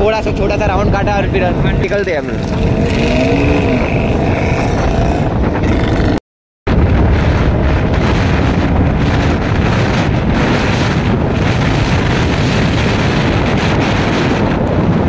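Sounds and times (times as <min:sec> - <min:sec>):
wind buffeting microphone: 0:00.0 - 0:15.0
motorcycle running: 0:01.4 - 0:06.2.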